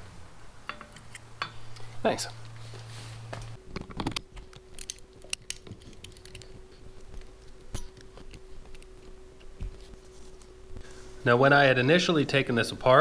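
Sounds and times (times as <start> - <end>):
faint steady hum: 0.0 - 13.0
metal parts clicking and tapping: 0.7 - 1.9, 3.8 - 6.5.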